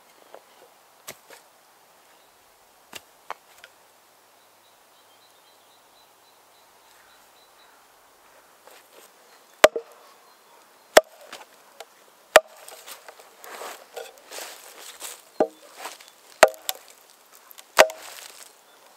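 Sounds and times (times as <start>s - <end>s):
faint wood crackling: 8.2s - 18.9s
maul striking axe in log: 9.6s - 9.8s, 11.0s - 11.4s, 12.3s - 12.8s, 15.4s - 15.6s, 16.4s - 16.8s, 17.8s - 18.2s.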